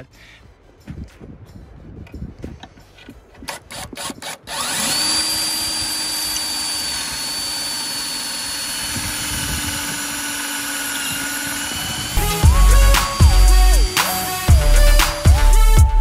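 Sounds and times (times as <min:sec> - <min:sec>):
drill clicks: 0:02.6 - 0:12.2
cordless drill whining: 0:03.4 - 0:15.6.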